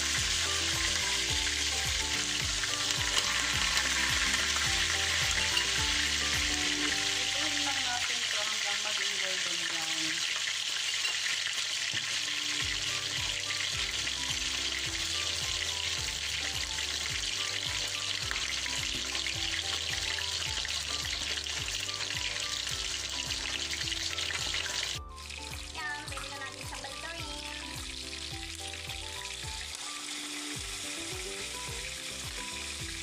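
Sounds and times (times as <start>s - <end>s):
background music with bass beat: 0.0s - 7.1s, 12.6s - 29.7s
fish sizzling in hot oil: 0.0s - 33.0s.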